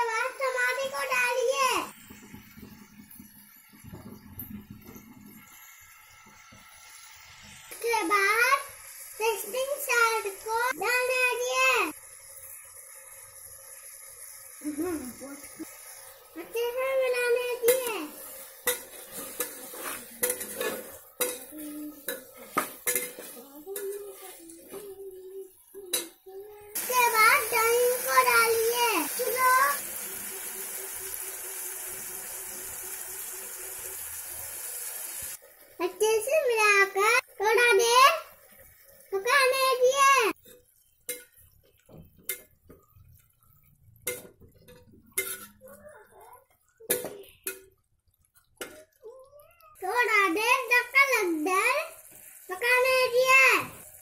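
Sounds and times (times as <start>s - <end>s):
metal ladle scraping a pot: 18.2s - 24.4s
metal spoon clinking on pot: 20.2s - 21.5s, 44.0s - 45.6s.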